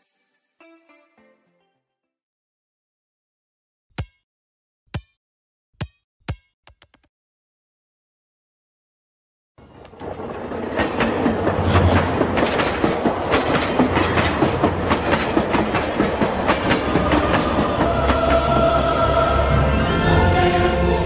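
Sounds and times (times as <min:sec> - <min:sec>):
rumbling clatter with clicks: 0:09.6 - 0:17.2.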